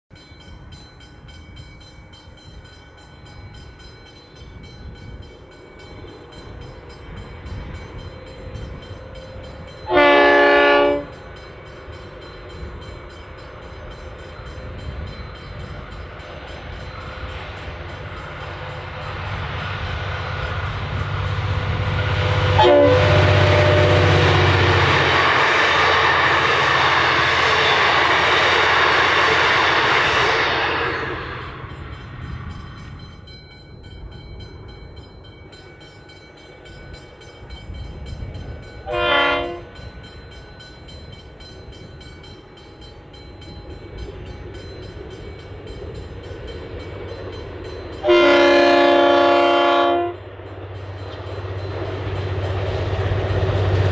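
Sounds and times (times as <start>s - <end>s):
diesel locomotive engine drone: 0.1s - 53.9s
train wheels rushing on rails: 0.6s - 53.9s
train horn blast: 9.2s - 11.3s, 21.9s - 27.9s, 38.8s - 39.8s, 48.0s - 50.2s.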